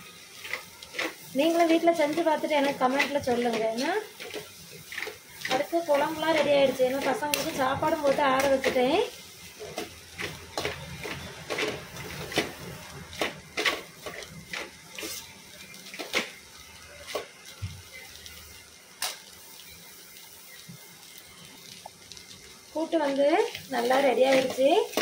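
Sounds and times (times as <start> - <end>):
steel spoon scraping a pan: 13.2 - 15.4, 23.5 - 25.0.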